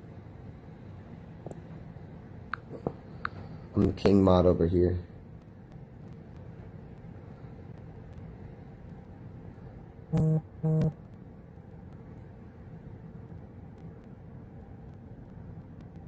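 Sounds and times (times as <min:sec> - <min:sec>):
steady low rumble: 0:00.0 - 0:16.0
loud low buzzing tones: 0:10.0 - 0:12.0.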